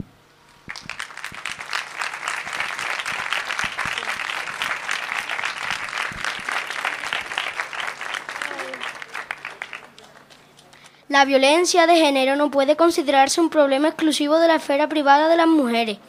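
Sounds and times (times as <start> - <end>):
crowd applauding: 0.6 - 11.0.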